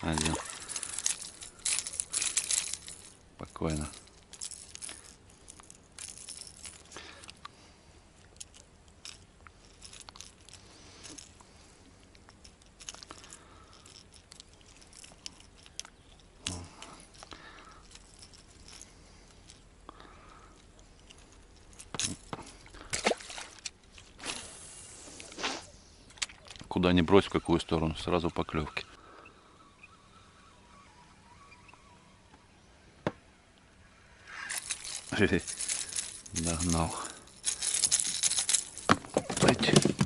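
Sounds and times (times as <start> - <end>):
fishing tackle clicking and rattling: 0.0 - 24.2, 26.1 - 28.0, 34.2 - 40.0.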